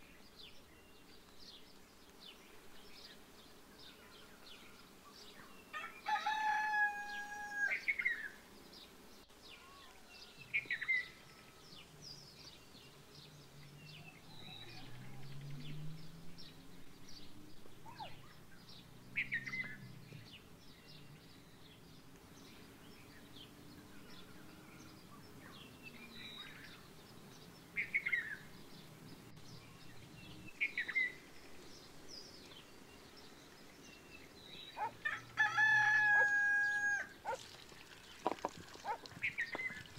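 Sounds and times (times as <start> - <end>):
small birds chirping: 0.0 - 39.9
rooster crowing: 5.7 - 7.9, 35.0 - 37.2.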